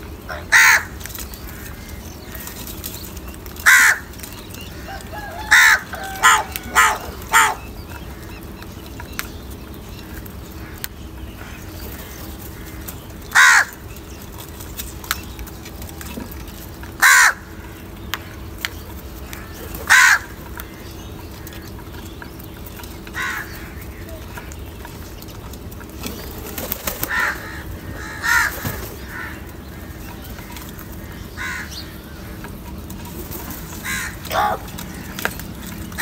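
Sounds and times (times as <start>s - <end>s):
crows cawing: 0.2s - 2.8s, 3.6s - 8.6s, 9.9s - 14.2s, 16.0s - 22.0s, 22.8s - 24.6s, 26.7s - 32.8s, 33.6s - 36.0s.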